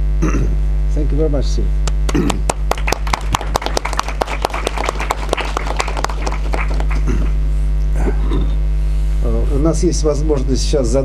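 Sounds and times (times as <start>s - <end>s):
electrical mains hum: 0.0s - 11.0s
audience applauding: 1.8s - 7.4s.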